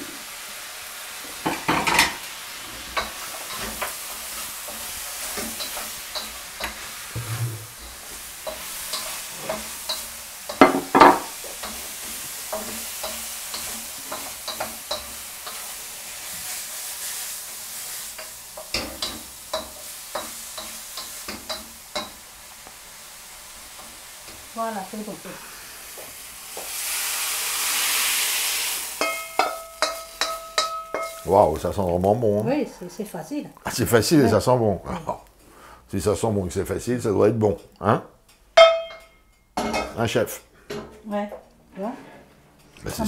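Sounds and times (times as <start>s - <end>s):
food sizzling in a wok: 0.0s - 34.4s
wooden spatula scraping a wok: 1.9s - 22.2s, 41.7s - 42.4s.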